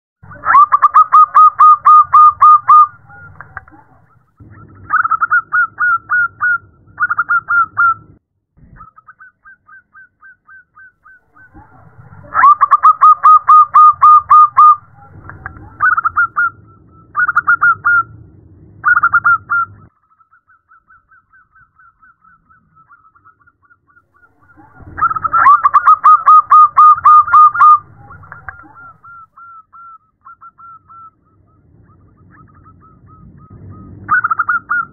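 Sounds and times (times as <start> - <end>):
dove cooing: 0.2 - 4.1, 11.0 - 18.1, 24.2 - 31.2.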